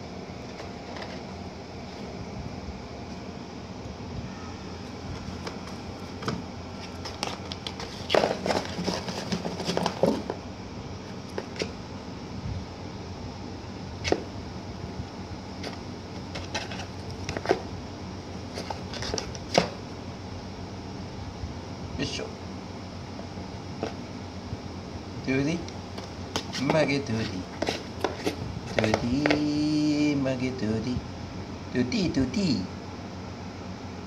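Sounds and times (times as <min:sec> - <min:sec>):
steady background hum: 0:00.0 - 0:34.0
cat scraping cardboard box: 0:05.2 - 0:10.4, 0:15.6 - 0:17.7, 0:18.4 - 0:19.8, 0:26.0 - 0:29.4.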